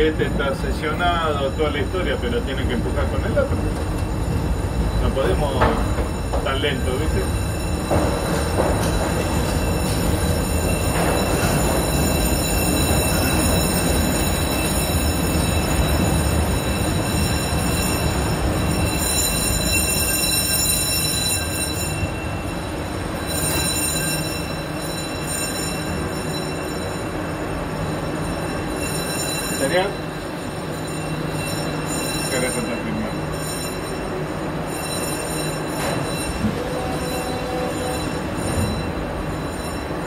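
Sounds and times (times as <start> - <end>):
train wheels rumbling: 0.0 - 40.0.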